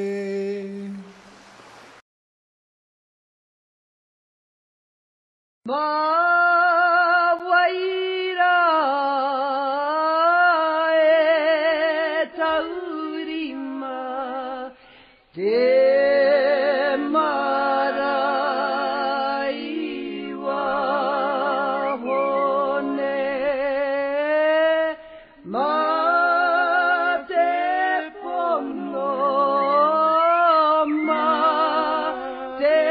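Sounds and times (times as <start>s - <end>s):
person singing long wavering notes: 0.0s - 1.1s, 25.5s - 32.9s.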